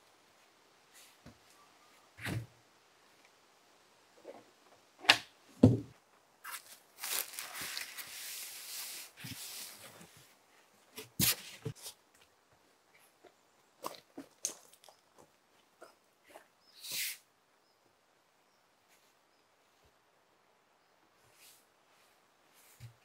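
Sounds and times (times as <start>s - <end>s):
boards thumping on wood: 5.1s - 5.9s
plastic wrapping rustling: 6.4s - 10.0s.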